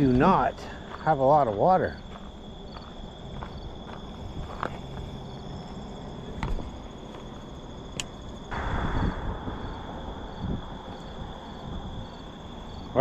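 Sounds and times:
crickets chirping: 0.0s - 13.0s
sharp click: 8.0s - 8.2s
brief noisy rush: 8.5s - 12.4s.

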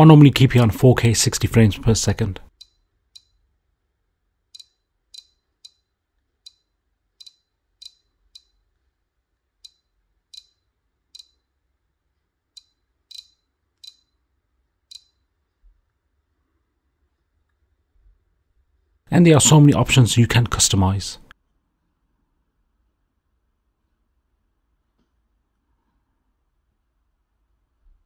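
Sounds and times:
touchscreen tapping clicks: 4.5s - 8.6s, 9.6s - 11.4s, 12.6s - 14.2s, 14.9s - 15.2s.

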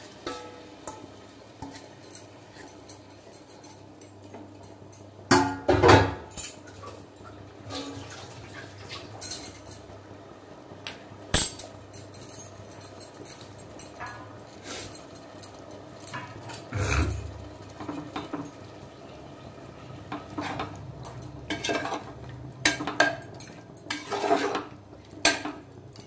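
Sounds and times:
metal pot lid clattering: 0.2s - 2.7s, 21.5s - 25.6s
light metal clinks: 0.2s - 5.1s, 11.4s - 18.6s.

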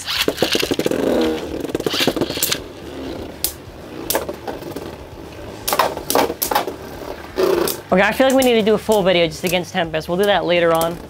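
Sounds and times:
spinning tops clacking together: 0.0s - 2.8s
spinning tops whirring and scraping: 0.0s - 9.6s.

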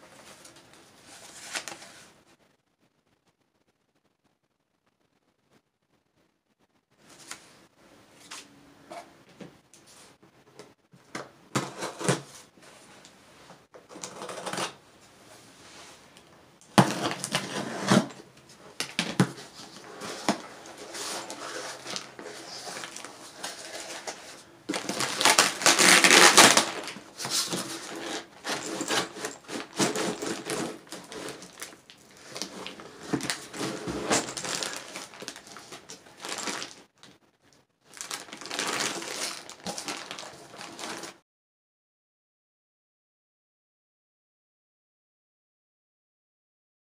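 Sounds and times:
plastic bags crinkling: 16.7s - 37.2s, 37.9s - 41.2s.

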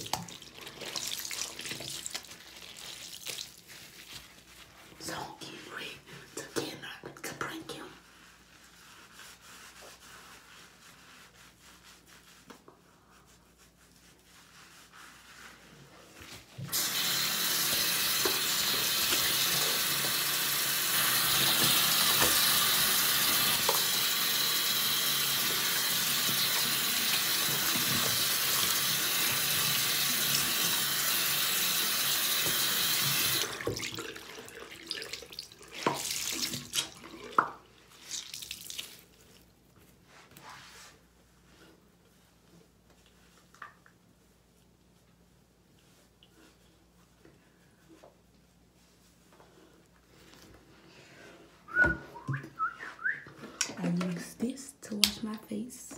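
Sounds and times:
washcloth splashes and knocks: 33.5s - 39.2s.

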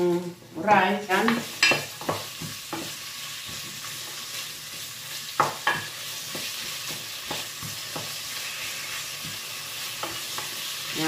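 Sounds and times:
pork sizzling in oil: 0.0s - 11.0s
wooden spoon knocking on pot: 1.2s - 3.7s, 5.4s - 8.2s.

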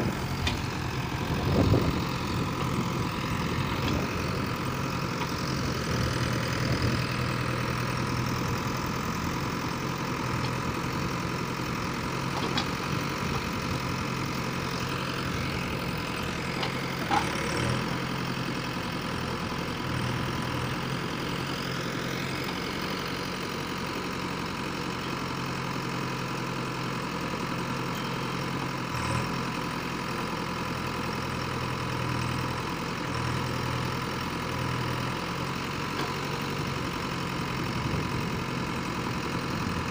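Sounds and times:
backhoe digging soil: 0.0s - 25.3s, 34.2s - 39.9s
diesel engine running: 0.0s - 39.9s.

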